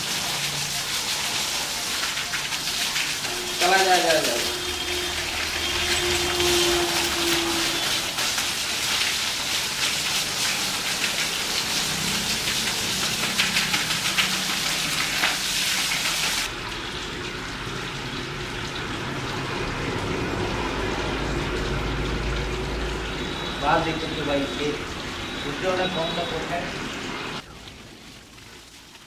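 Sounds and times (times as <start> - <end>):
hose water splashing on dog: 0.0 - 29.0
steady running water: 0.0 - 29.0.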